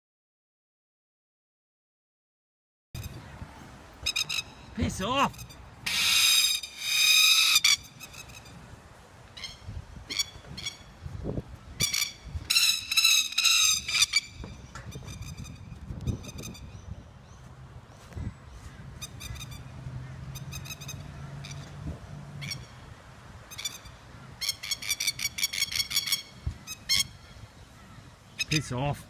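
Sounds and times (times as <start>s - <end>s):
lapwing rattling alarm call: 4.0s - 8.6s, 9.3s - 11.0s, 11.7s - 17.4s, 18.2s - 21.8s, 22.4s - 28.8s.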